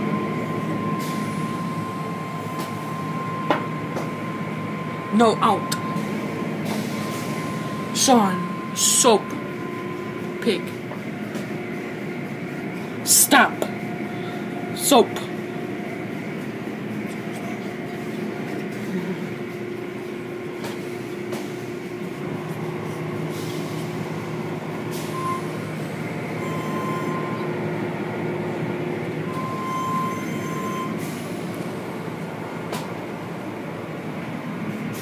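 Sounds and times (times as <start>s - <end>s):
steady motor hum: 0.0s - 35.0s
short high-pitched tones: 7.1s - 10.7s, 26.4s - 27.5s, 29.3s - 31.0s.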